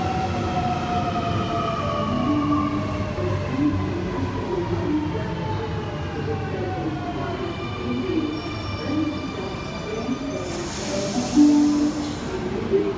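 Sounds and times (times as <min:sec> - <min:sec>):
loud brake hiss: 0:10.4 - 0:12.4.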